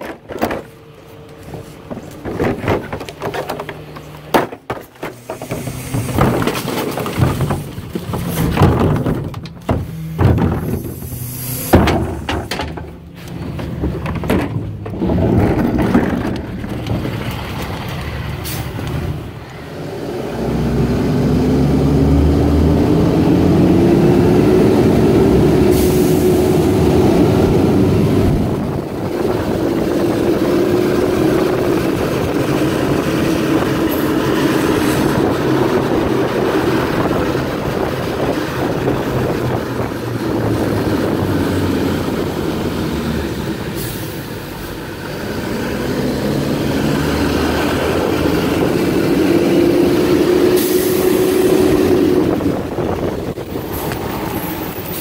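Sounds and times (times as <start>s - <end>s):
trash cart knocks and clatter: 0.0s - 18.0s
diesel truck engine pulling away: 9.8s - 55.0s
tyres hissing on wet road: 10.7s - 11.8s, 18.1s - 21.0s, 25.3s - 28.2s, 33.0s - 37.0s, 40.1s - 52.6s.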